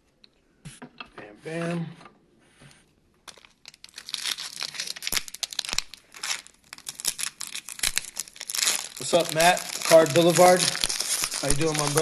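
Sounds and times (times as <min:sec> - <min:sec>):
wrapper crinkling and tearing: 0:03.3 - 0:12.0.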